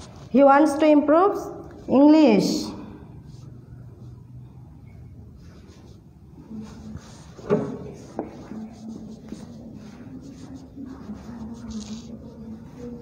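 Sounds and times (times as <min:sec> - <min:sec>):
marker scratching on whiteboard: 0:05.3 - 0:13.0.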